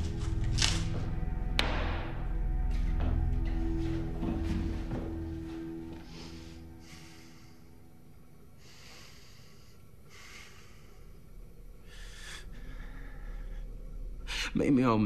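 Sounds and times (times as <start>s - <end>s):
person breathing: 6.0s - 14.5s.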